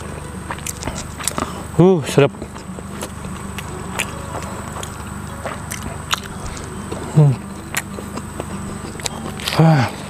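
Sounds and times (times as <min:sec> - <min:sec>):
man chewing food: 0:00.0 - 0:10.0
man humming mm: 0:06.2 - 0:10.0.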